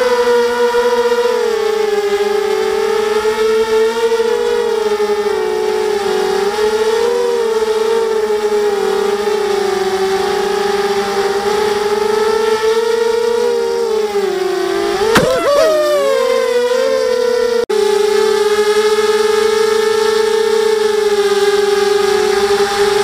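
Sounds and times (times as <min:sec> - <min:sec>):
drone motors whining: 0:14.8 - 0:16.5
sharp click: 0:15.1 - 0:15.9.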